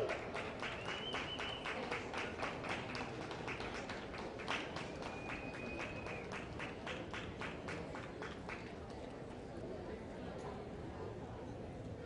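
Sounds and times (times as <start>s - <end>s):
rhythmic hand clapping: 0.0s - 8.7s.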